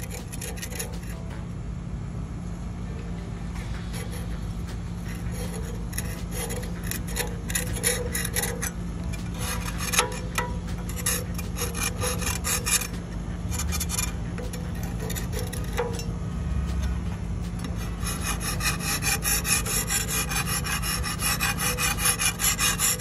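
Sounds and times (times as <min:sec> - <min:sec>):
metal scraper scraping paint: 0:00.0 - 0:01.4, 0:03.6 - 0:23.0.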